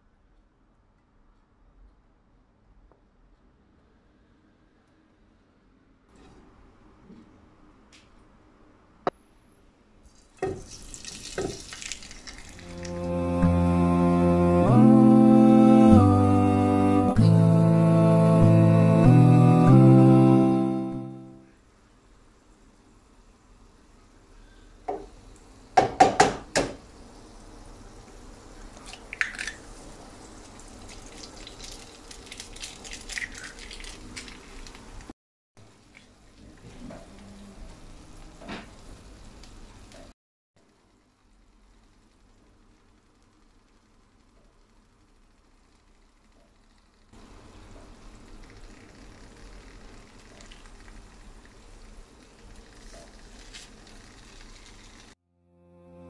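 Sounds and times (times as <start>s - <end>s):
egg cracking: 10.1s - 13.0s, 28.8s - 35.1s, 48.3s - 55.2s
food sizzling in oil: 10.1s - 13.0s, 26.9s - 35.0s.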